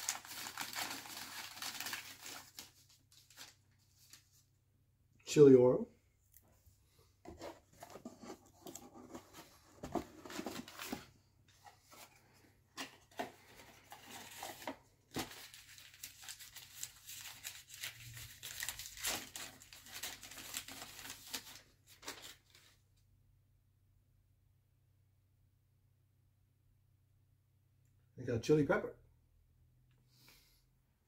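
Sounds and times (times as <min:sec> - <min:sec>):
packing paper rustling and tearing: 0:00.0 - 0:04.4, 0:13.0 - 0:22.8.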